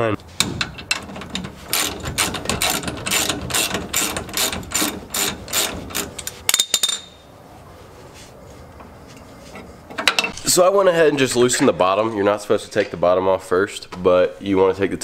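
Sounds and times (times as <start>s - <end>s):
ratchet wrench clicking: 1.7s - 6.4s.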